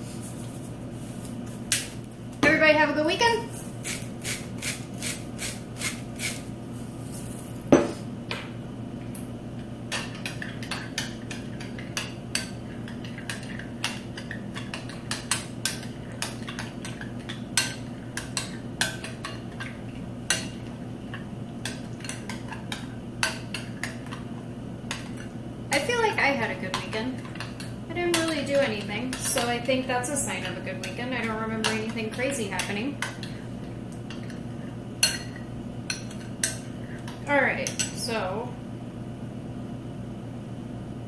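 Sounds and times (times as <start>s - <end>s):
utensil stirring dressing: 3.6s - 6.5s, 9.9s - 25.4s.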